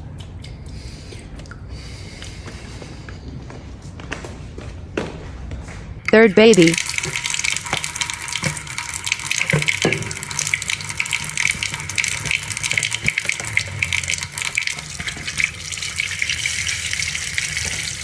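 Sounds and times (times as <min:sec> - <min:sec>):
running water splashing: 0:06.4 - 0:18.0.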